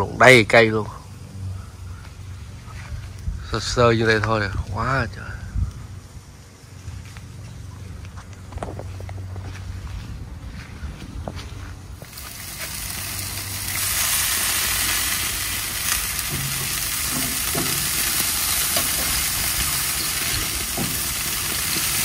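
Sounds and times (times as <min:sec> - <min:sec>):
food sizzling in a pan: 0:12.1 - 0:22.0.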